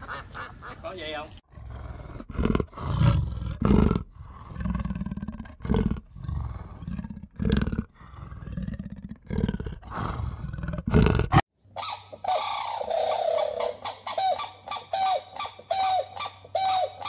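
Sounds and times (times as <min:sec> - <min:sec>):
animal low rough calls: 0:01.5 - 0:11.4.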